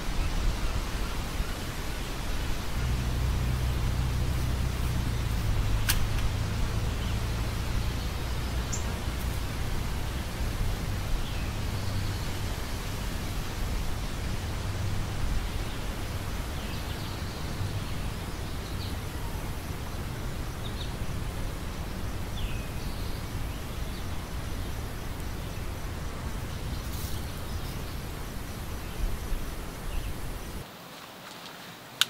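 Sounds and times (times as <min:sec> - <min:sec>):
low outdoor rumble: 0:00.0 - 0:30.6
sharp click: 0:05.8 - 0:06.3.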